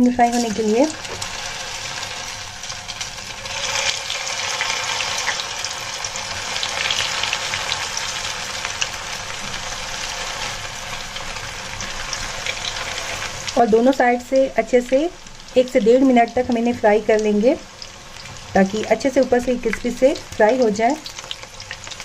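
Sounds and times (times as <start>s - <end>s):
food sizzling in hot oil: 0.0s - 22.0s.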